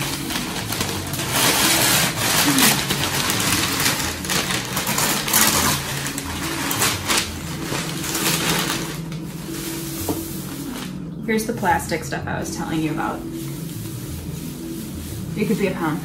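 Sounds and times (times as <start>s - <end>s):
packing paper crinkling: 0.0s - 11.1s, 12.9s - 16.0s.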